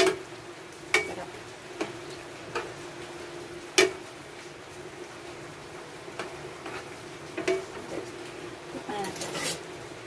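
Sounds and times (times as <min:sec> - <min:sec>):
metal ladle scraping a pan: 0:09.0 - 0:09.7.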